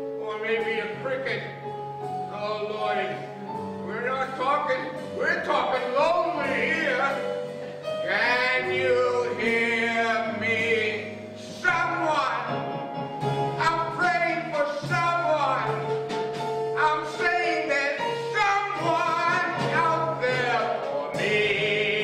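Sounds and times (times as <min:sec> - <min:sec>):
instrumental accompaniment: 0:00.0 - 0:22.0
man singing a slow ballad: 0:02.3 - 0:07.3, 0:08.0 - 0:12.6, 0:13.6 - 0:16.0, 0:16.8 - 0:22.0.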